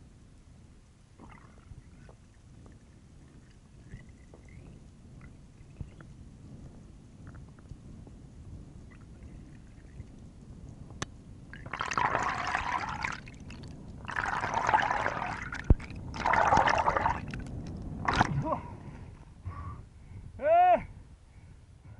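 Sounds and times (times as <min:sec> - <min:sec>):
water sloshing underwater: 0:01.2 - 0:10.4, 0:11.5 - 0:19.4.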